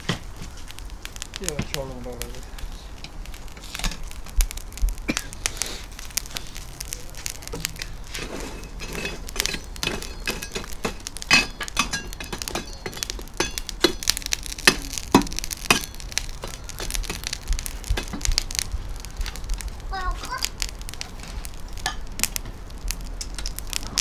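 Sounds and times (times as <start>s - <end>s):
sharp clinks and knocks: 7.8s - 17.3s.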